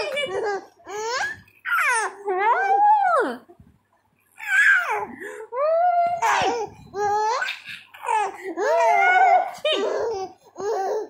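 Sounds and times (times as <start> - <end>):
baby laughing and squealing: 0.0 - 2.2, 4.4 - 5.1, 6.1 - 11.0.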